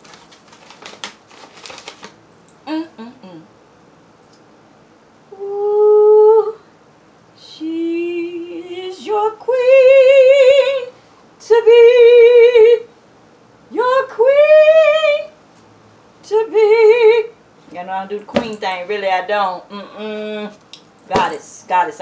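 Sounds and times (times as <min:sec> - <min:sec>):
woman singing wordless notes: 0:02.7 - 0:03.5, 0:05.3 - 0:06.6, 0:07.4 - 0:12.9, 0:13.7 - 0:15.4, 0:16.2 - 0:21.9.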